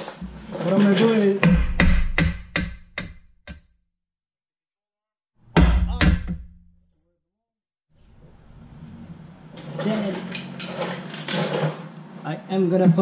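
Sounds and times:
metal tool knocking: 1.4s - 3.6s.

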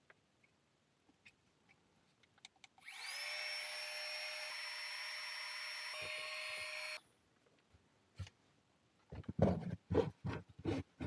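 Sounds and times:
small electric fan motor whirring: 2.8s - 7.0s.

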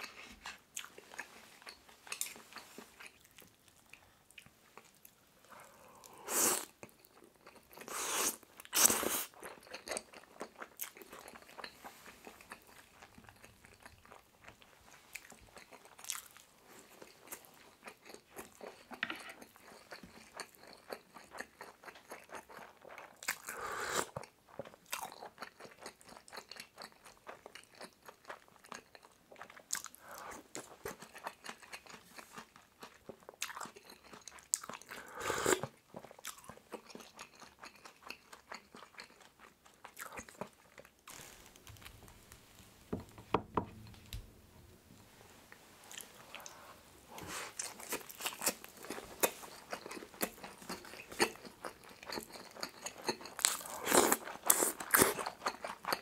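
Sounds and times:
person chewing food: 0.0s - 42.4s, 45.9s - 56.0s
slurping broth from spoon: 23.4s - 24.2s, 35.0s - 35.7s.

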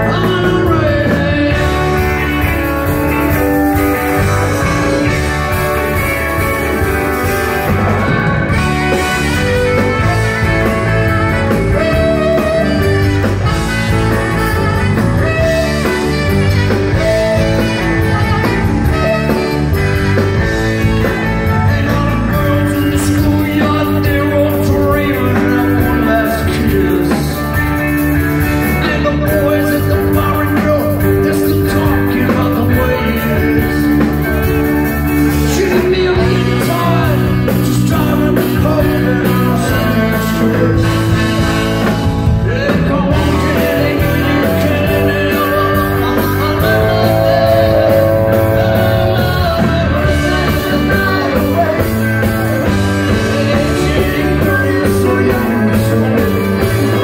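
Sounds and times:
rock band playing: 0.0s - 57.0s
tenor saxophone solo: 0.8s - 22.0s, 43.6s - 52.9s.

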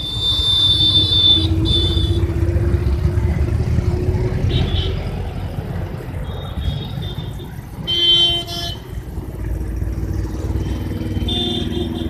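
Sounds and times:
vehicle horn honking: 0.0s - 2.3s, 4.5s - 5.1s, 6.6s - 8.8s, 10.6s - 12.0s
traffic rumble: 0.0s - 12.0s.

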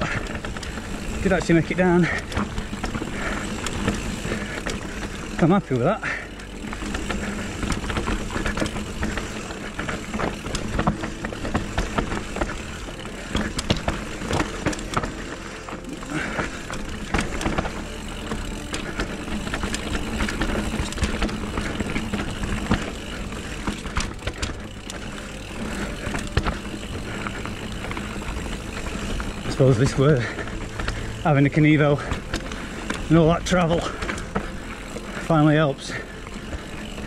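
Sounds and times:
bike rattling and knocking: 0.0s - 37.0s
bike tyres rolling over dirt: 0.0s - 37.0s.

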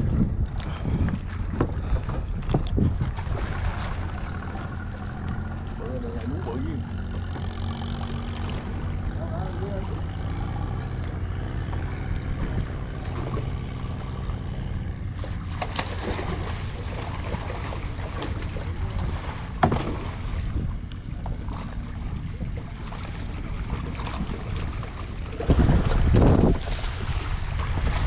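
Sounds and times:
steady low rumble: 0.0s - 28.0s
fish thrashing in water: 0.8s - 9.2s, 10.0s - 28.0s
sharp water slap: 15.2s - 18.5s.

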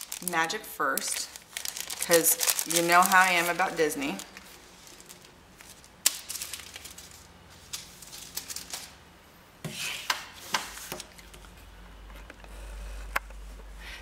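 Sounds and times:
sticker sheets rustling: 1.0s - 9.0s.

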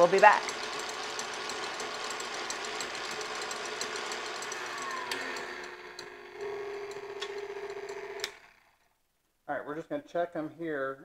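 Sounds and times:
whisk ticking rattle: 0.0s - 8.7s
stand mixer running on high: 0.0s - 8.8s.

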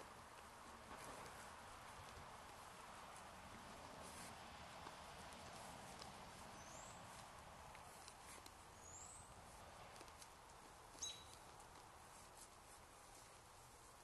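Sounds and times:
microphone hiss: 0.0s - 14.0s
faint high chirps: 11.0s - 11.4s.

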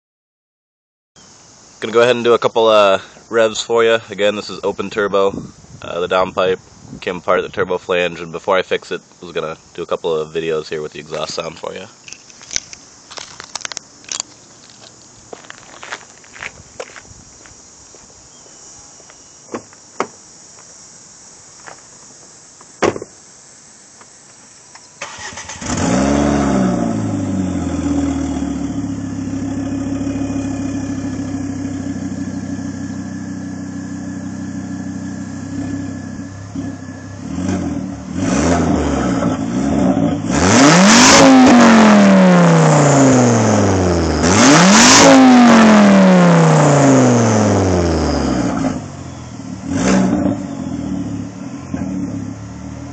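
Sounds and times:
car door opening and shutting: 22.8s - 23.2s
car engine idling and revving: 25.0s - 52.9s.

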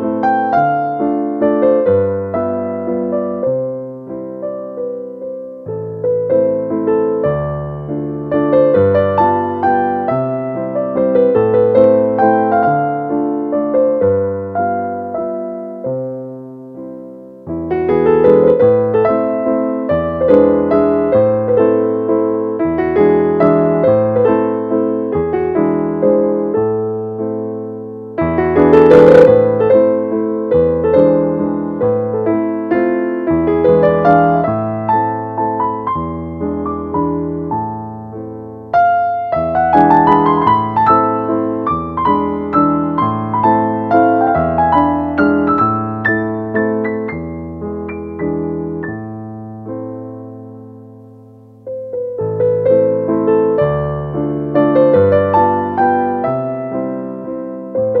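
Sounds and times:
slow gentle piano music: 0.0s - 58.0s.

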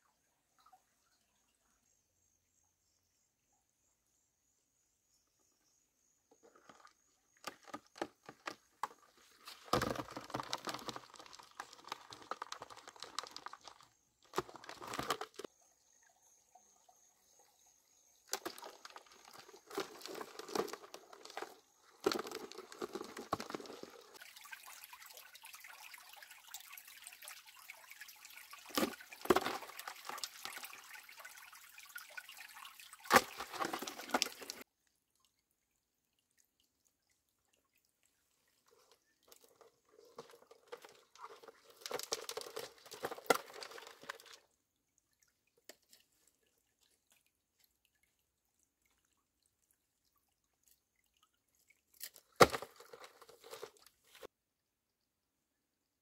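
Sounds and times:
faint water trickle: 0.0s - 7.5s, 15.4s - 52.4s
water splashing and dripping: 6.4s - 15.6s, 17.3s - 54.3s.

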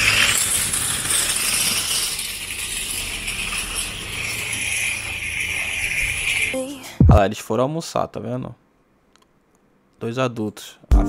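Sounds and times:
metal trolley rattling on asphalt: 0.0s - 6.6s.

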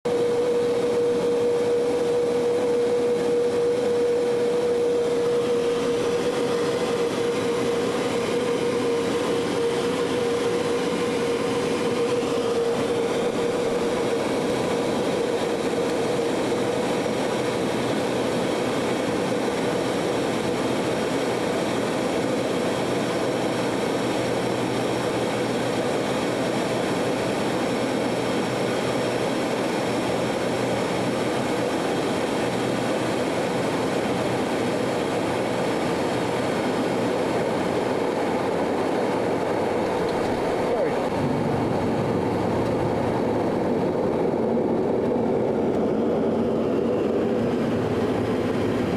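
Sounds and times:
turboprop engine drone: 0.0s - 48.9s
engine whining tone: 0.1s - 31.7s.

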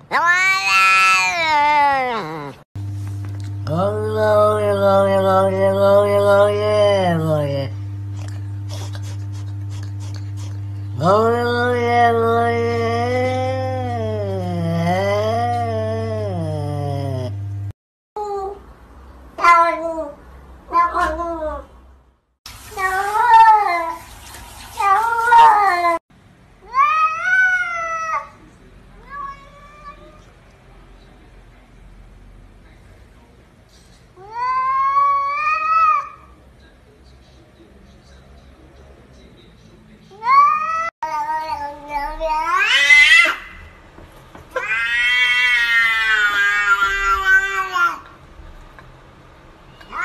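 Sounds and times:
cat meowing: 0.0s - 2.6s, 19.4s - 21.7s, 44.6s - 48.1s, 49.8s - 50.0s.

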